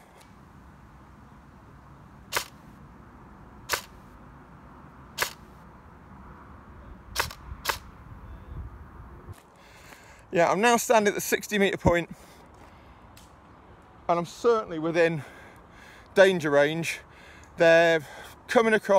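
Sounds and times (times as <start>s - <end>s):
airsoft gun shots clicking: 2.3s - 2.6s, 3.7s - 4.0s, 5.2s - 5.5s, 7.2s - 7.9s.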